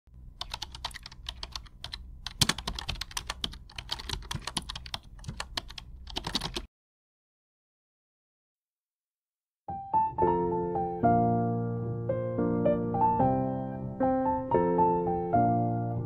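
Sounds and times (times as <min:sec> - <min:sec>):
keyboard typing clicks: 0:00.4 - 0:06.7.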